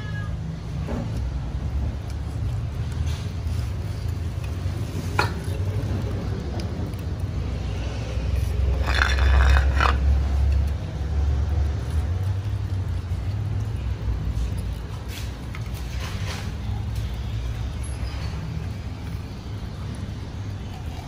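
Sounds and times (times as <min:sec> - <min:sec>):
cat meowing: 0:00.0 - 0:00.4.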